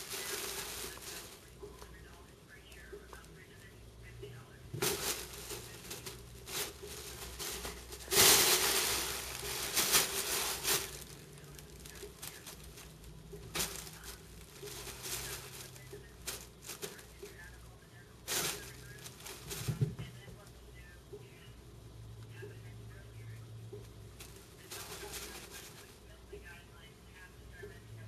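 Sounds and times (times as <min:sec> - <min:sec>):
crinkle tunnel rustling: 0:00.0 - 0:03.6, 0:04.7 - 0:17.5, 0:18.2 - 0:19.8, 0:24.2 - 0:26.0
cats scuffing: 0:04.8 - 0:11.2.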